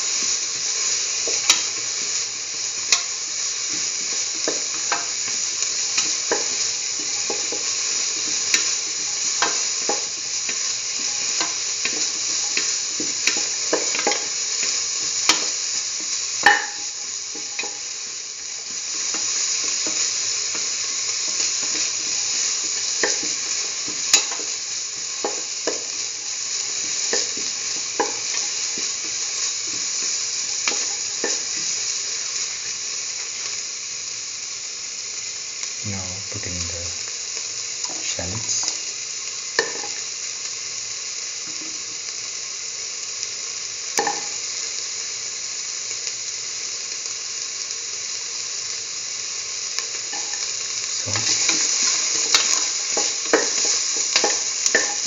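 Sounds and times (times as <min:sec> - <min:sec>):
onion sizzling in oil: 0:00.0 - 0:55.0
spatula scraping and tapping pan: 0:09.4 - 0:15.6, 0:16.4 - 0:17.8, 0:22.8 - 0:24.6, 0:25.2 - 0:26.1, 0:26.8 - 0:31.8, 0:39.6 - 0:40.0, 0:44.0 - 0:44.4, 0:51.1 - 0:55.0.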